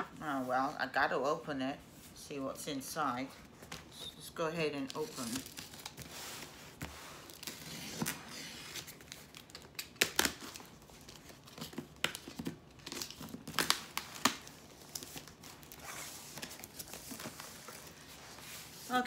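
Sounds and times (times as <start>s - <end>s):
cardboard rustling and crinkling: 4.8s - 19.0s
packing tape tearing: 4.9s - 6.1s, 7.2s - 17.8s.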